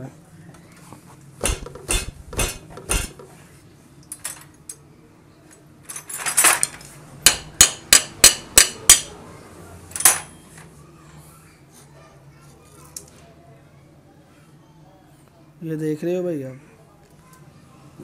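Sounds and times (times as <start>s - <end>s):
metal clinking: 1.4s - 3.2s
sharp metal knocks: 1.4s - 3.3s, 7.2s - 9.1s.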